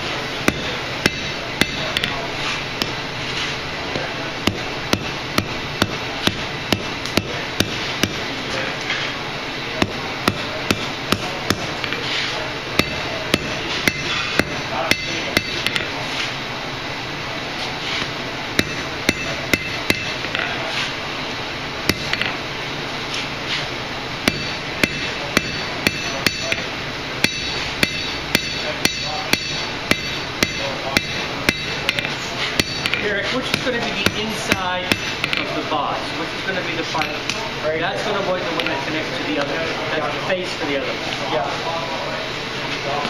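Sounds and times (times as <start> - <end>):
hammer striking steel on anvil: 0.4 - 2.2, 4.4 - 8.2, 9.8 - 12.0, 12.8 - 16.0, 18.6 - 20.5, 21.9 - 22.4, 24.2 - 35.5.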